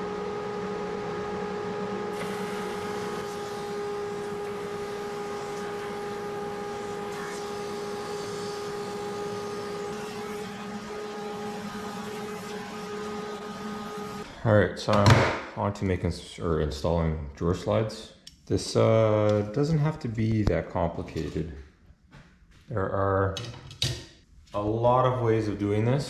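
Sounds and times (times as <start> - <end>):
drum sander humming and whining: 0.0 - 14.2.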